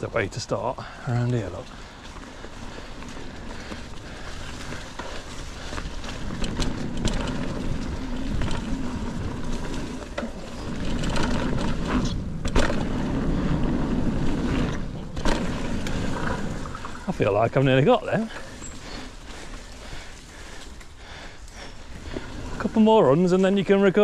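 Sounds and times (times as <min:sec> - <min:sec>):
bike tyres on dirt trail: 0:00.0 - 0:24.0
bike knocks and clatters: 0:06.2 - 0:13.1, 0:14.6 - 0:16.4.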